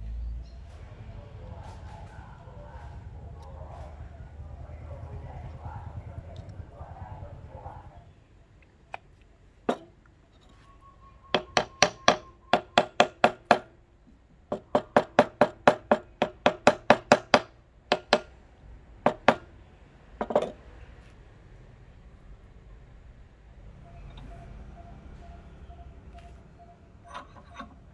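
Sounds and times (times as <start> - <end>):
hammer striking wooden handle: 11.4 - 13.7, 14.5 - 18.3, 19.1 - 19.5
faint metallic ring: 25.2 - 27.9.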